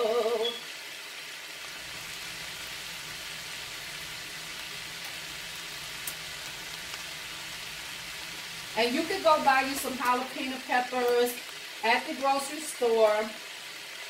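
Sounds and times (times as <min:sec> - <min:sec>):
cabbage sizzling in a skillet: 0:00.0 - 0:14.0.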